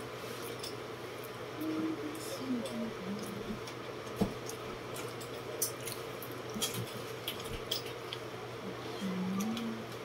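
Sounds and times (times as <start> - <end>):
electric fan hum: 0.0 - 10.0.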